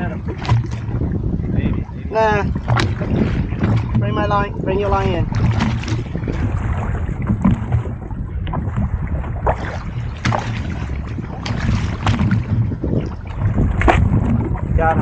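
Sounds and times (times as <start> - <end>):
wind buffeting microphone: 0.0 - 15.0
sharp knocks: 10.0 - 10.8.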